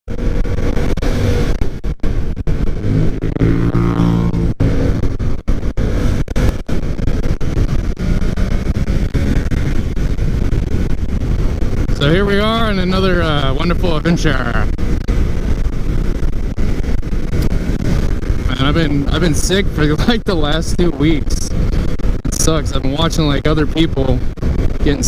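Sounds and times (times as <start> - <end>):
motorcycle engine running: 0.1 - 25.0
passing traffic: 0.1 - 25.0
wind rush: 0.1 - 25.0.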